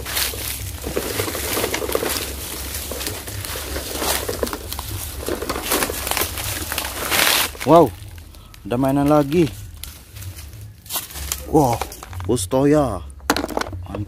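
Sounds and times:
dry leaves crackling and rustling: 0.0 - 12.2
low steady rumble: 0.0 - 14.0.

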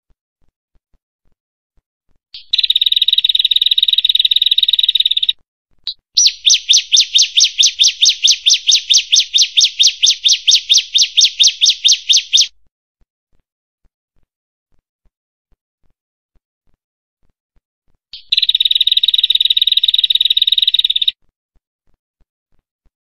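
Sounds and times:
bird trilling and chirping: 2.4 - 5.3, 5.9 - 12.5, 18.2 - 21.1.

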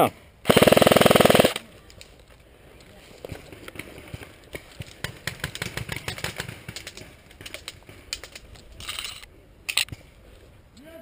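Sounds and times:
airsoft guns firing: 0.4 - 1.6.

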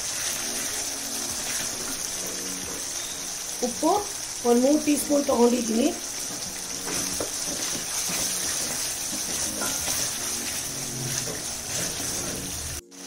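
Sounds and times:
vegetables sizzling in oil: 0.0 - 13.0
wooden spatula scraping: 6.2 - 12.8.

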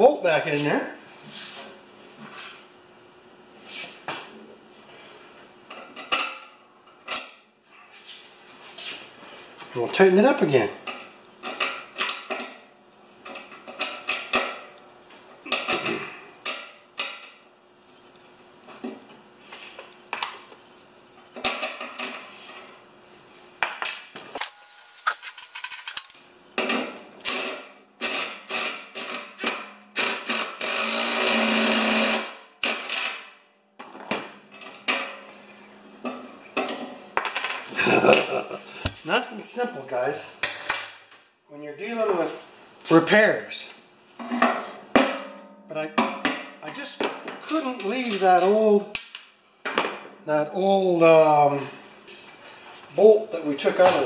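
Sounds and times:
cordless drill running: 30.0 - 32.3.

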